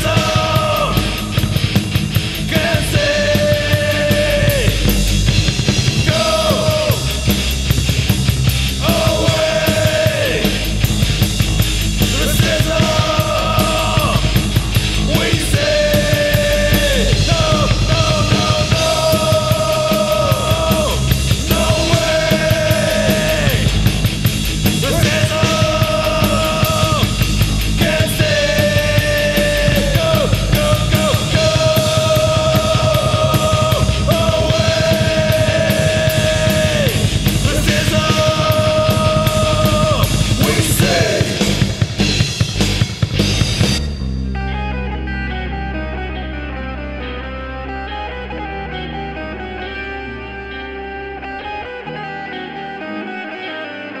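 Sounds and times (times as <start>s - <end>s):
fast drums with cymbals: 0.0s - 44.0s
distorted guitars: 0.0s - 54.0s
melody of long held notes: 43.9s - 54.0s.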